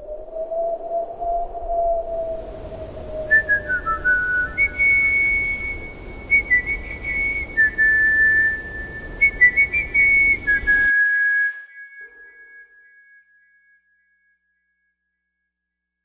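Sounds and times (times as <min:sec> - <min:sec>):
whistled melody: 0:03.2 - 0:14.0.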